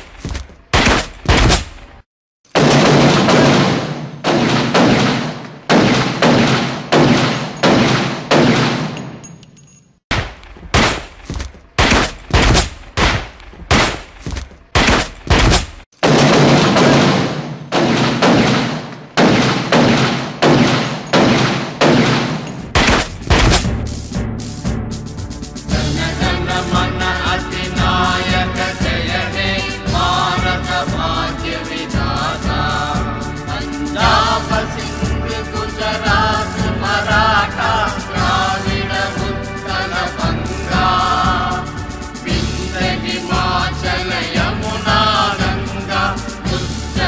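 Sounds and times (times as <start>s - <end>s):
gunfire bangs with echo: 2.5s - 9.3s, 10.1s - 23.8s.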